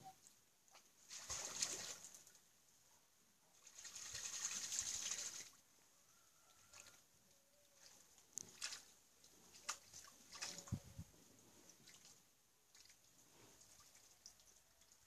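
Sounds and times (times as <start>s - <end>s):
swan splashing in water: 0.7s - 2.4s, 3.5s - 5.6s, 6.4s - 7.1s, 7.7s - 10.8s, 11.7s - 15.0s.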